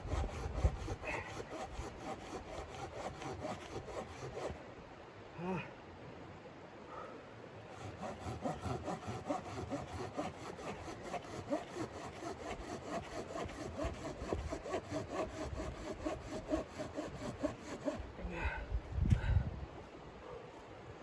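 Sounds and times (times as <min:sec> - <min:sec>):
hand saw cutting log: 0:00.0 - 0:04.6, 0:07.7 - 0:18.1.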